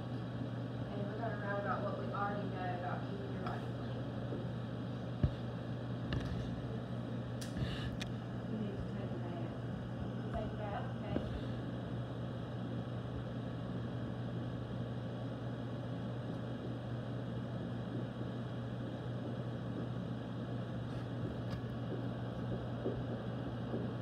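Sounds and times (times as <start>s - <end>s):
low hum over hiss: 0.0s - 24.0s.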